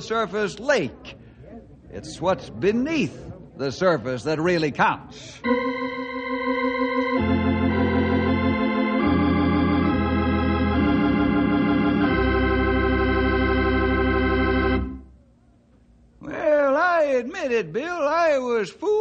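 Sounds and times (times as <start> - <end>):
organ chords: 5.4 - 15.2.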